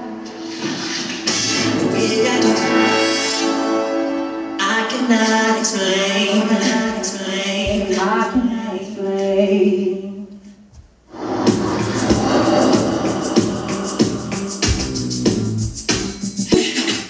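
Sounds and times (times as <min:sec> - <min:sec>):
music: 0:00.0 - 0:08.5, 0:11.1 - 0:17.0
person singing: 0:01.6 - 0:03.7, 0:04.6 - 0:10.3, 0:11.1 - 0:15.2.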